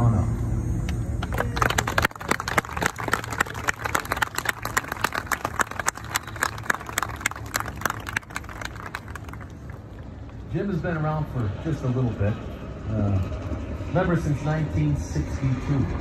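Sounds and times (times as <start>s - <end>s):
audience applauding: 1.2s - 10.3s.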